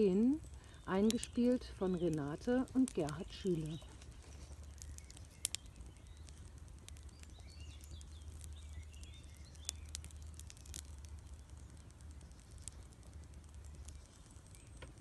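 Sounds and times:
wood fire crackling: 0:00.0 - 0:15.0
sharp pops of fire: 0:00.4 - 0:15.0
faint bird chirps: 0:03.2 - 0:13.0.

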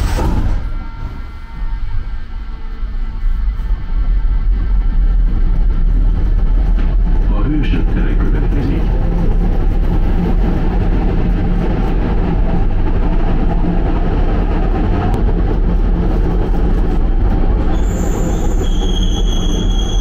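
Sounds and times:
high steady squeal: 0:00.0 - 0:05.7, 0:17.6 - 0:20.0
train wheels rumbling on rails: 0:00.0 - 0:20.0.

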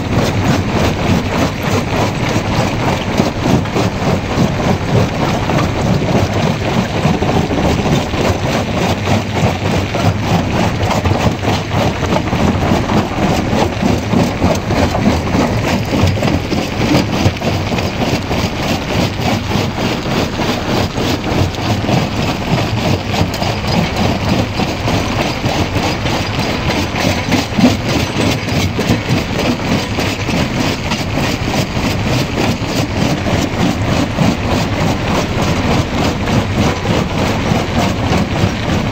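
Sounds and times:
rock crackling and grinding: 0:00.0 - 0:38.9.

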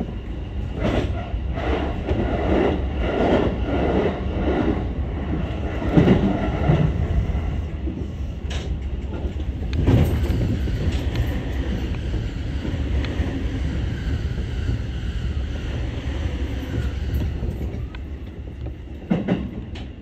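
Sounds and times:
electric train rumbling: 0:00.0 - 0:20.0
wheels clattering over rail joints: 0:08.5 - 0:11.9.

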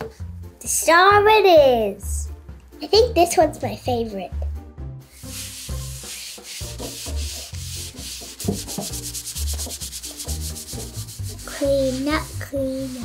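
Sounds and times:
sponge scrubbing wooden countertop: 0:05.1 - 0:13.0.

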